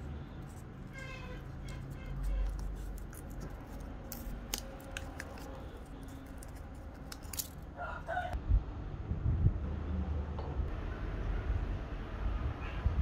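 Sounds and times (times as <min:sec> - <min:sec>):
paper rustle: 0:00.0 - 0:07.6
old paper crackling: 0:00.0 - 0:07.8.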